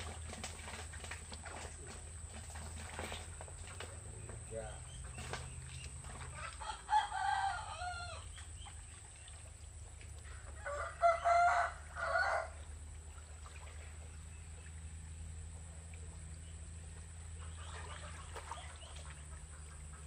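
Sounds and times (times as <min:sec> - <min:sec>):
rooster crowing: 0:06.6 - 0:08.3, 0:10.3 - 0:12.6.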